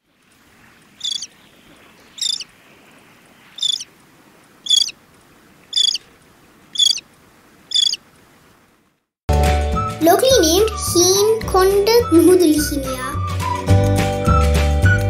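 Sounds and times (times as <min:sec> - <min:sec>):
faint background hiss: 0:00.0 - 0:09.0
tern calling: 0:00.8 - 0:02.6, 0:03.2 - 0:08.2.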